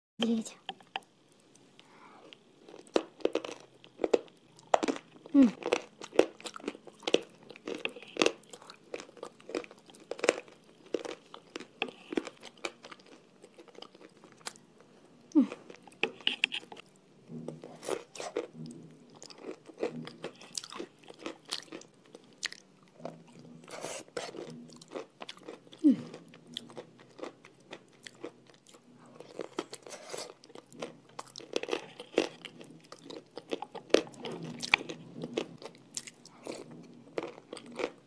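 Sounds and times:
chewing crunchy paste: 2.3 - 14.6, 15.4 - 38.0.

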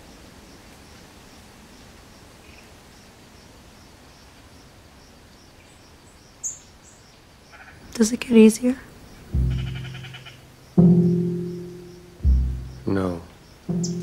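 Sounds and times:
soft background hiss: 4.3 - 14.0
sharp high chirp: 9.4 - 12.9.

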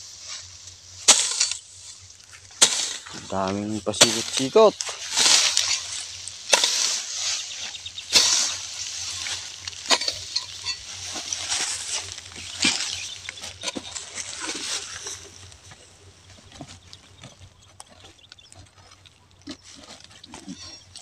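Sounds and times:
dry grass rustling and scraping: 0.0 - 21.0
metal hoe chopping soil: 0.4 - 15.6, 19.5 - 21.0.

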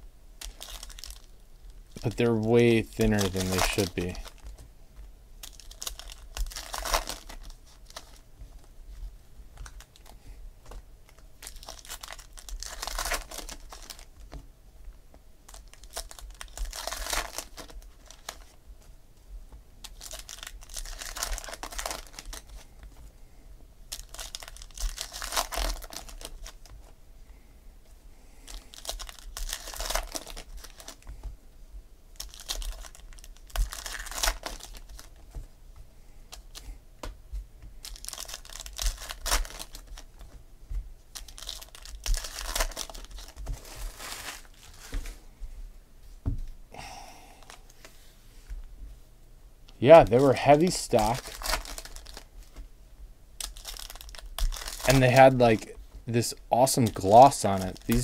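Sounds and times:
foil wrappers tearing and crinkling: 0.4 - 4.5, 5.4 - 8.2, 11.1 - 14.1, 15.5 - 18.6, 19.8 - 22.7, 23.9 - 26.8, 28.4 - 31.1, 32.1 - 35.2, 37.8 - 40.2, 41.1 - 45.1, 50.1 - 52.3, 53.4 - 58.0.

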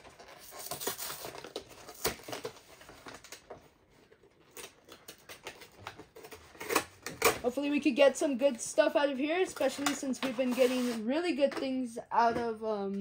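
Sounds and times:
packaging crinkling and rustling: 0.0 - 7.5.

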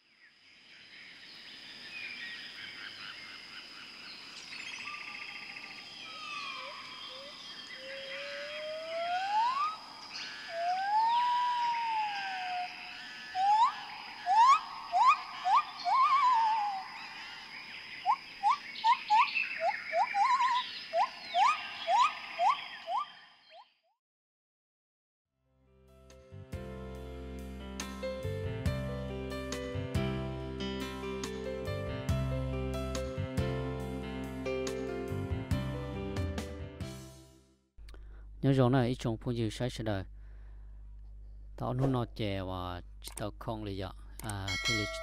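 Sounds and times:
birds chirping: 0.8 - 23.7
rising whistled bird calls: 4.6 - 23.7.

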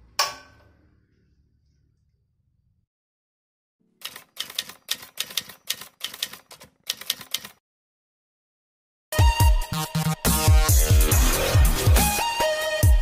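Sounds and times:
typewriter keys clattering: 4.0 - 7.6
electronic music with heavy bass: 9.2 - 13.0.

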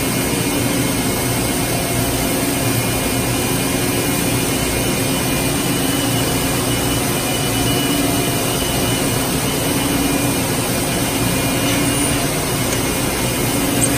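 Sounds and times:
constant low hum: 0.0 - 13.9
factory machinery noise: 0.0 - 13.9
faint high whine: 4.5 - 13.9.

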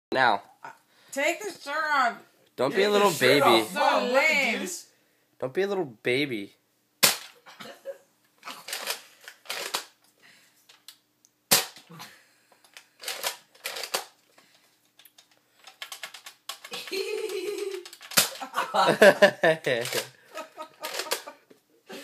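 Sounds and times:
toy blaster plastic snaps: 7.0 - 7.4, 11.5 - 11.9, 17.8 - 18.4.

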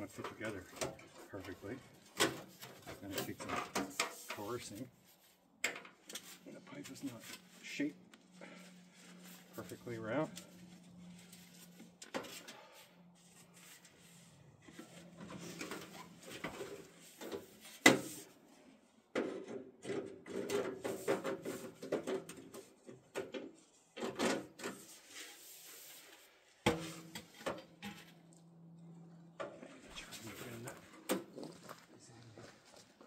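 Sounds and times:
metal pipes scraping and rattling: 0.0 - 4.8, 8.4 - 18.4, 24.0 - 28.2.

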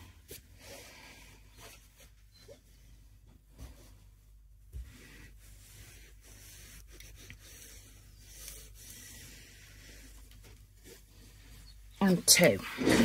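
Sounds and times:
fabric rubbing: 3.8 - 11.9.

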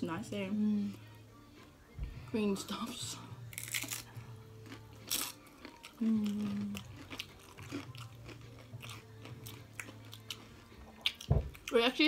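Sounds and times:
chips crunching while chewed: 3.5 - 11.7
person humming: 5.9 - 6.9.

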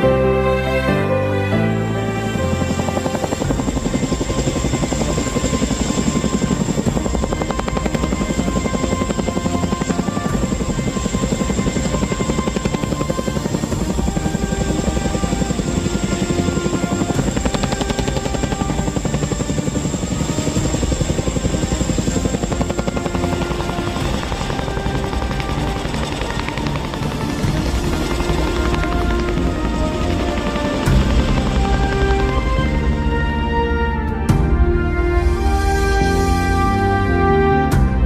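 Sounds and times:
background music: 0.0 - 38.0
helicopter rotors chopping: 1.4 - 33.8.

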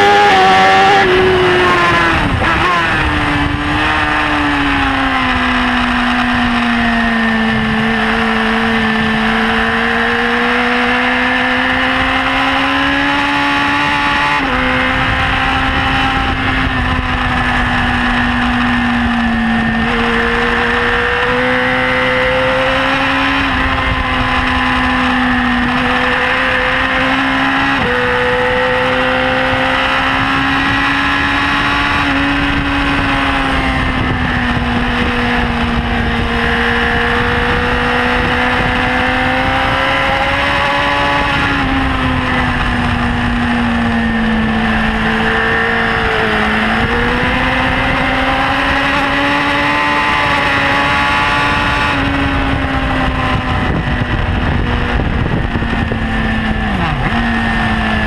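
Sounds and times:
motorcycle engine at high revs: 0.0 - 58.0
wind rush: 0.0 - 58.0.

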